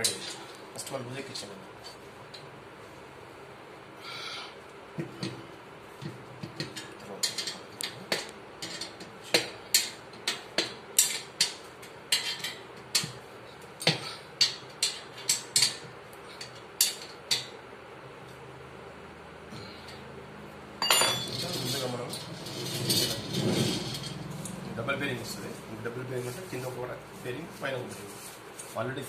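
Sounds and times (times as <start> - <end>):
hand tool clinking on metal: 20.8 - 21.8.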